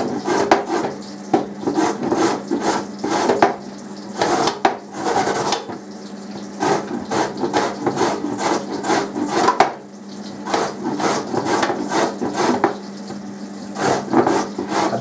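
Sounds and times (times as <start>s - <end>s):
carrot rasping on metal grater: 0.0s - 1.0s, 1.6s - 3.5s, 4.2s - 5.7s, 6.6s - 9.7s, 10.4s - 12.8s, 13.8s - 15.0s.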